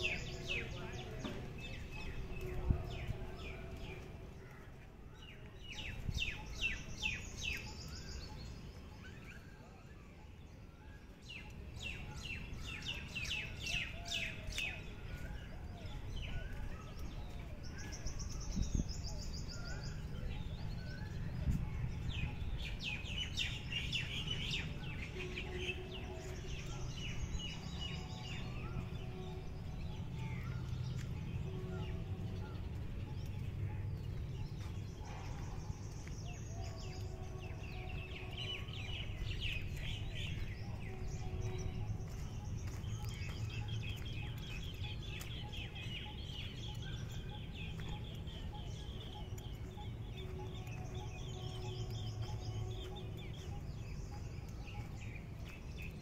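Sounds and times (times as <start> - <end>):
birds chirping and trilling: 0.0 - 56.0
low repeated bird notes: 0.0 - 56.0
steady low rumble: 25.6 - 56.0.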